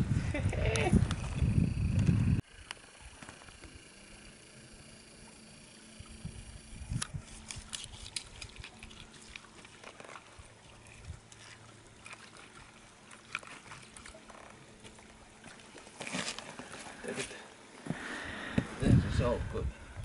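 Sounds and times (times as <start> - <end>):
small water splashes: 7.6 - 17.0.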